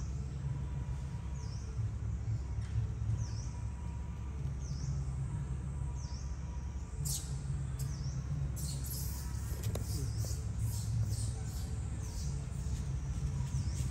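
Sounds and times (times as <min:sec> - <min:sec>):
steady low rumble: 0:00.0 - 0:13.9
bird chirping: 0:07.0 - 0:13.9.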